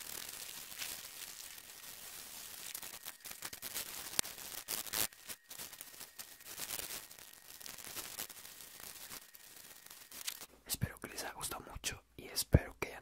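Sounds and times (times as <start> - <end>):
foam rubbed against microphone: 0.0 - 10.5.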